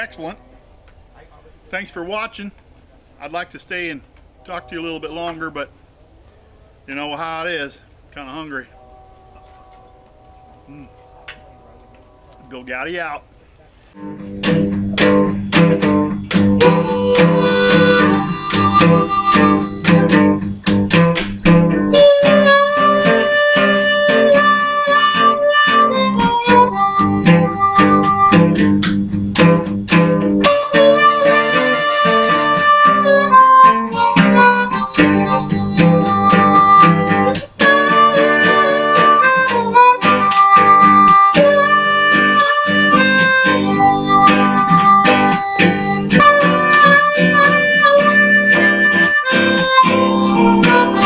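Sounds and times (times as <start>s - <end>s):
blues harmonica: 8.8s - 12.7s, 14.0s - 51.0s
acoustic guitar: 13.9s - 51.0s.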